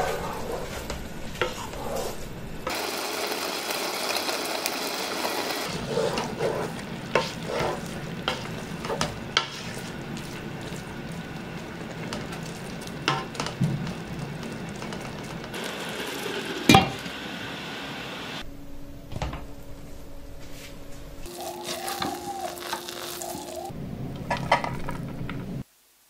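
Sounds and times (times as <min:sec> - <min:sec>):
spatula scraping rice in pot: 0:05.7 - 0:10.9, 0:21.3 - 0:23.7.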